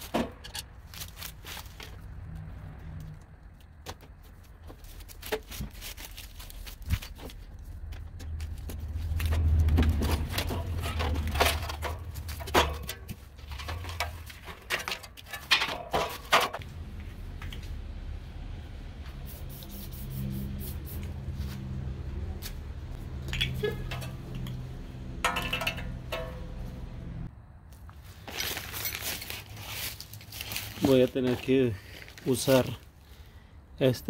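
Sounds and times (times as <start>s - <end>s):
metal tools clicking and clattering: 10.1s - 16.6s, 25.2s - 26.6s
low rumble: 16.6s - 19.3s.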